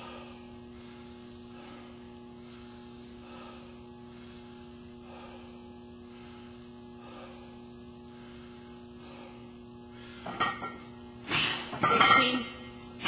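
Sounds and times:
man breathing heavily: 0:00.0 - 0:11.8
electrical hum: 0:00.0 - 0:13.0.

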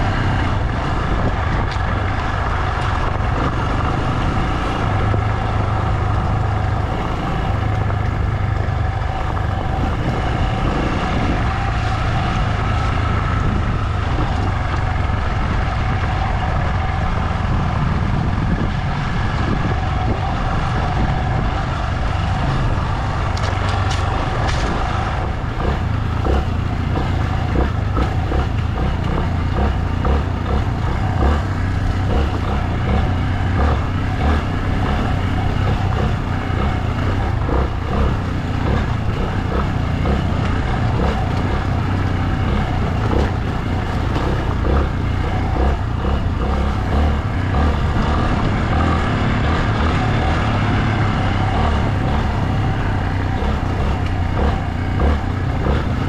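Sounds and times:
road and wind noise: 0:00.0 - 0:56.0
vehicle engine running: 0:00.0 - 0:56.0.

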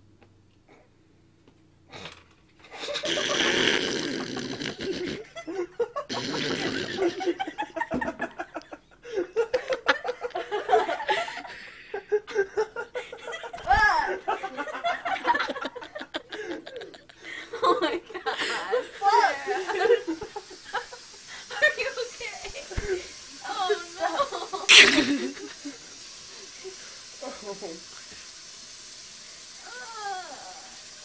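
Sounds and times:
laughter: 0:02.7 - 0:23.1, 0:24.0 - 0:25.8
woman coughing and sputtering: 0:24.7 - 0:25.4.

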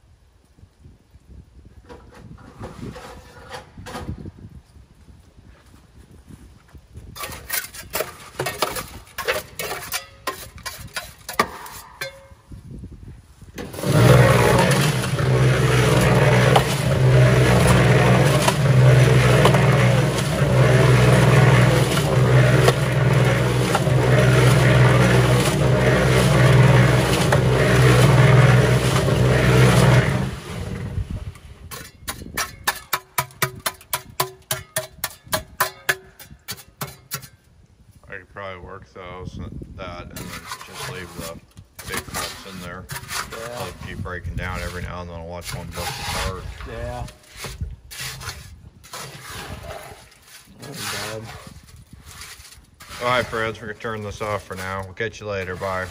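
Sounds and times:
trowel scraping metal drum: 0:01.9 - 0:04.2, 0:07.2 - 0:12.4, 0:13.6 - 0:37.4, 0:40.1 - 0:55.9
concrete churning in drum: 0:13.6 - 0:31.1, 0:52.8 - 0:54.6, 0:55.4 - 0:55.9
cement mixer motor hum: 0:13.6 - 0:35.1, 0:52.8 - 0:55.9.

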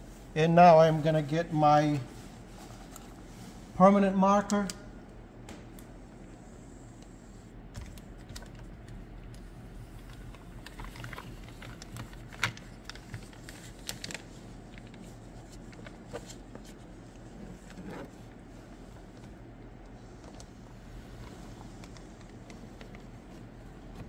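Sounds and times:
low steady hum: 0:00.0 - 0:24.0
plastic film crackling and clicking: 0:10.0 - 0:16.7.

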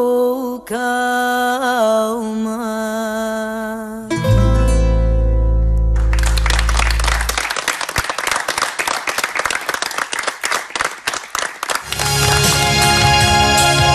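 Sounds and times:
audience applause: 0:06.0 - 0:13.9.

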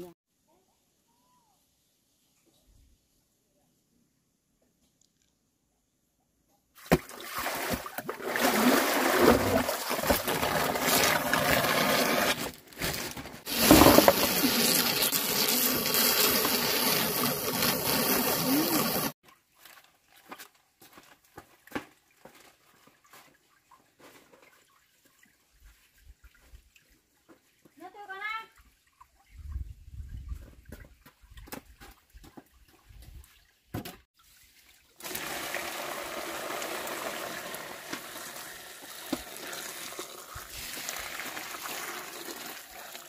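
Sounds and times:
water splashing in plastic basin: 0:06.8 - 0:20.3.

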